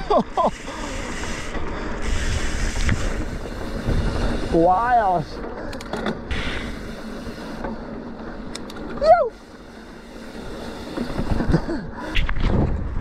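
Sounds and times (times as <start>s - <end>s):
bike tyres rolling on dirt: 0.0s - 13.0s
bumps and rumble: 0.8s - 9.1s.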